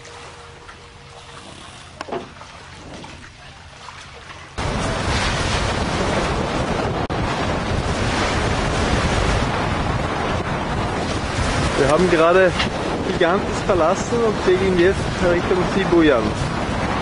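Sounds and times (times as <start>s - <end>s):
faint water trickling: 0.0s - 4.6s
sea water rushing: 0.0s - 17.0s
wind buffeting microphone: 4.6s - 17.0s.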